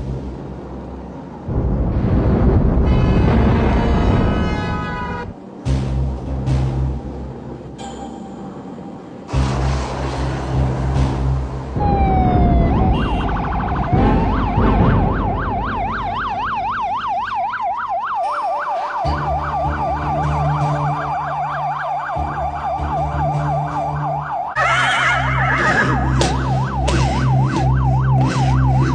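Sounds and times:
police siren yelping: 11.8s - 28.9s.

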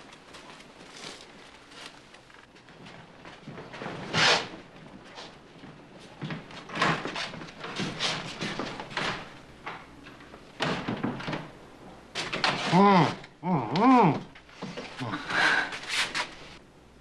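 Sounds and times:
wooden door opening and shutting: 6.3s - 13.3s.

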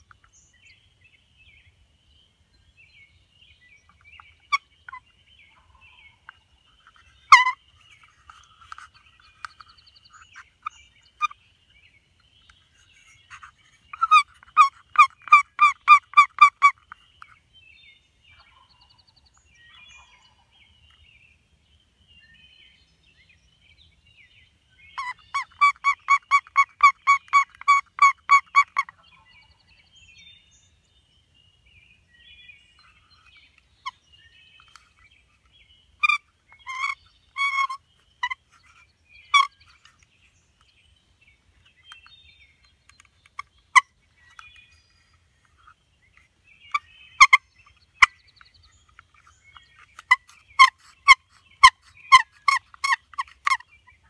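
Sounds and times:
songbird chirping: 0.0s - 54.0s
turkey clucks and cutting notes: 25.0s - 29.0s, 36.0s - 39.6s, 46.7s - 47.4s, 49.0s - 53.7s.

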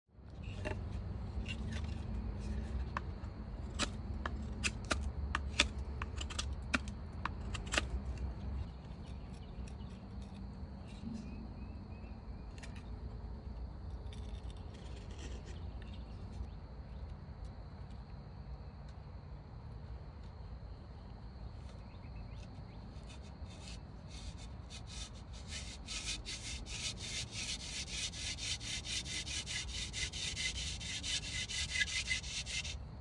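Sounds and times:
knife cutting wood: 0.5s - 10.4s, 23.0s - 32.8s.

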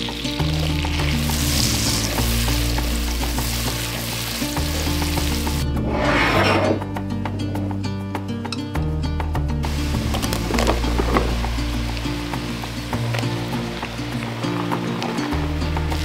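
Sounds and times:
leeks sizzling in butter: 0.0s - 5.7s, 9.7s - 16.0s
background music with beat: 0.0s - 6.0s, 6.7s - 16.0s
short whoosh: 5.6s - 7.0s.

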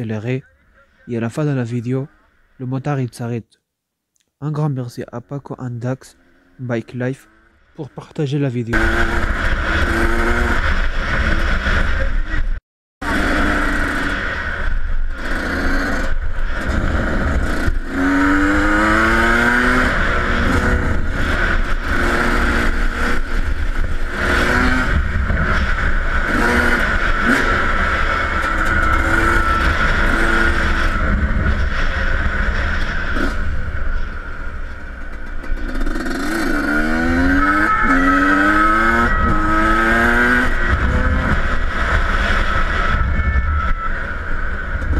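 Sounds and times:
two-stroke motorcycle engine revving: 8.7s - 12.4s, 13.0s - 43.4s.

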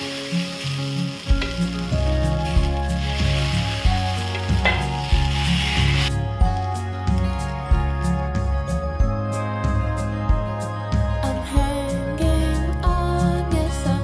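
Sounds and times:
batter sizzling on a hot griddle: 0.0s - 6.6s
background music with steady beat: 0.0s - 14.0s.

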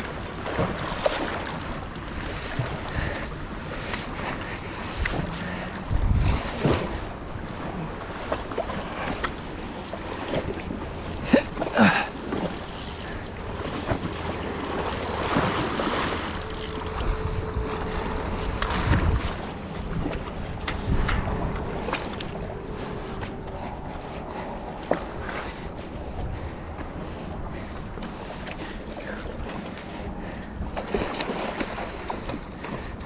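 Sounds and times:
wind buffeting microphone: 0.0s - 11.2s, 12.5s - 28.3s.

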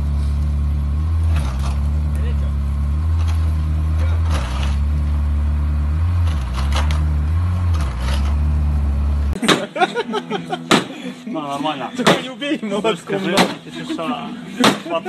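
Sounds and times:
car engine idling: 0.0s - 15.0s
sharp knocks: 9.4s - 9.8s, 10.7s - 10.9s, 12.0s - 12.3s, 14.6s - 14.9s.

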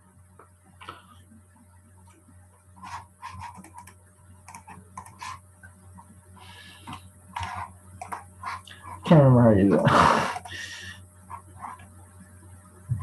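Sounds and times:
low electrical hum: 0.0s - 13.0s
keyboard and mouse clicking: 2.9s - 5.4s, 6.8s - 8.3s.

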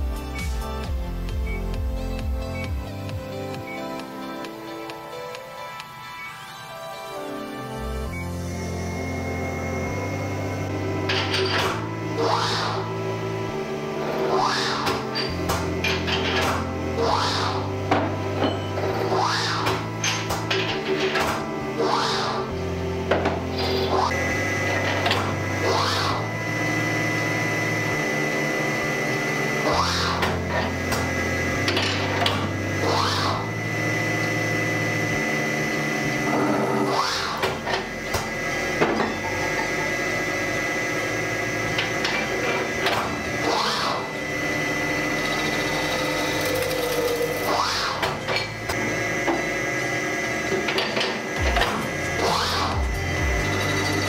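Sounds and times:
backing track with bass line: 0.0s - 3.7s, 51.4s - 54.0s
machine spinning high tone: 6.0s - 54.0s.

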